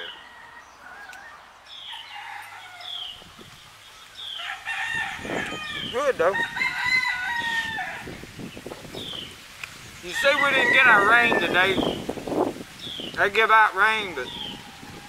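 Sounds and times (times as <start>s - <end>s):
rooster crowing: 0.0s - 3.4s, 4.3s - 8.3s, 10.1s - 11.9s
chickens clucking: 5.2s - 15.0s.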